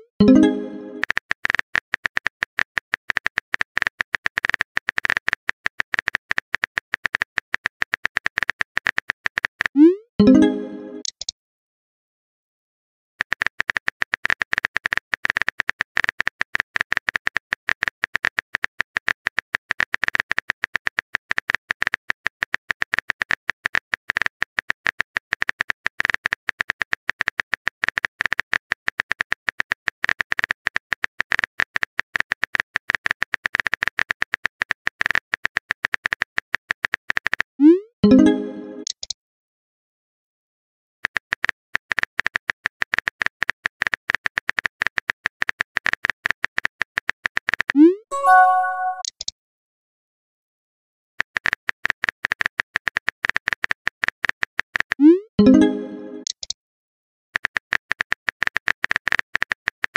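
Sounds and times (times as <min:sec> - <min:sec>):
rising message-sent tone: 0:00.2 - 0:01.0, 0:10.2 - 0:11.1, 0:38.0 - 0:38.8, 0:48.1 - 0:49.1
phone keyboard typing clicks: 0:38.2 - 0:39.2, 0:41.1 - 0:49.3, 0:51.4 - 0:56.6.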